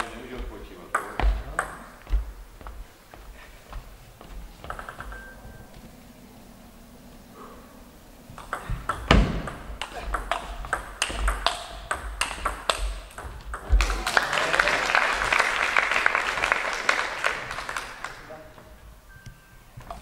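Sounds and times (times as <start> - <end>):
table tennis ball clicking: 8.4 - 14.0
spectators applauding: 13.6 - 18.6.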